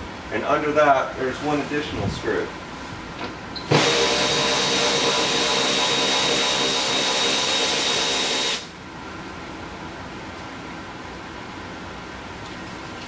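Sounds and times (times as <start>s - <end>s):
cordless drill motor whine: 3.6s - 8.7s.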